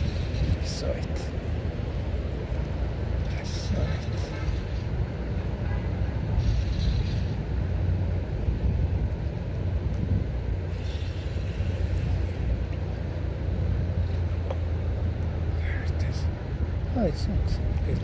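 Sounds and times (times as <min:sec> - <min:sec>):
wind on microphone: 0:00.0 - 0:02.2, 0:06.2 - 0:12.8.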